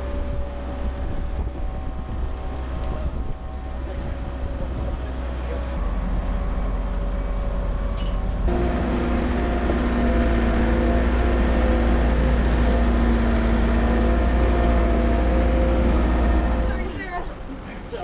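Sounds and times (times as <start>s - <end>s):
forklift engine droning: 0.0s - 17.6s
vehicle engine running: 8.5s - 17.2s.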